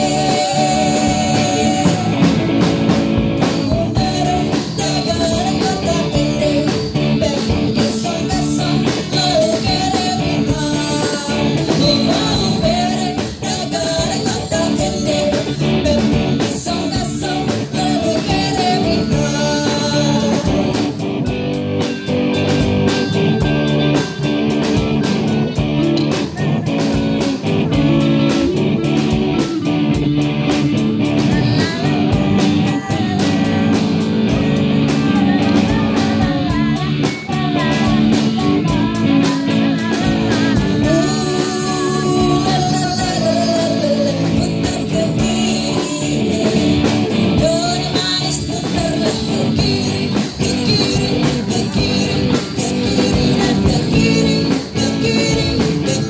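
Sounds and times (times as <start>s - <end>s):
woman singing into microphone: 0.0s - 21.0s, 31.1s - 56.0s
drum kit: 0.0s - 56.0s
electric guitar: 0.0s - 56.0s.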